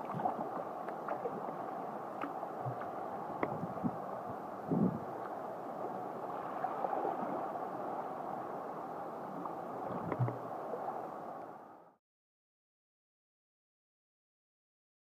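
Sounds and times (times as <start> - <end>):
water gurgling along kayak hull: 0.0 - 11.9.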